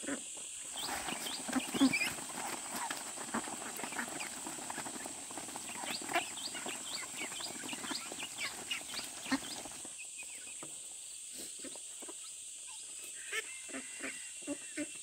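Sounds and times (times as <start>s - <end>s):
ducklings peeping: 0.0s - 10.7s.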